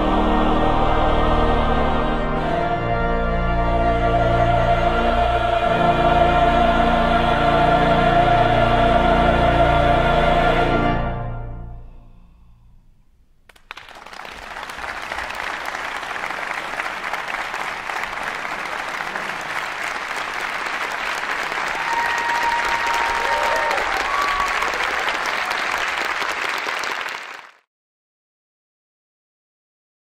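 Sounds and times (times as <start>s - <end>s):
large audience applauding: 13.5s - 27.7s.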